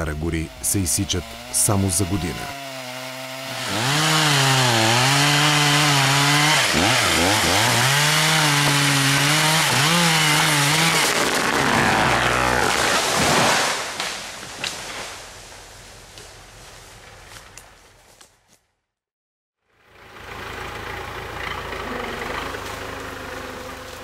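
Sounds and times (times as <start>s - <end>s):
chainsaw cutting wood: 0.0s - 15.1s.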